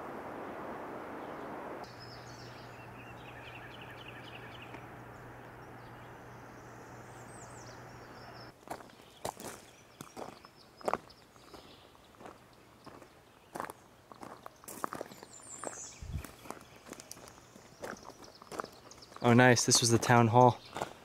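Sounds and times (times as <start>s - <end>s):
rushing noise: 0.0s - 2.4s
faint low hum: 0.0s - 8.5s
small birds chirping: 1.1s - 21.0s
footsteps on gravel: 8.5s - 21.0s.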